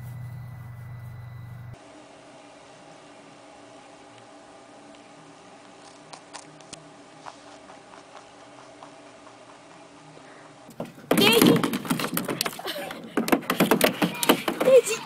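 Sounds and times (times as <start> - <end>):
steady low hum: 0.0 - 15.0
rabbit nibbling carrot: 5.6 - 10.4.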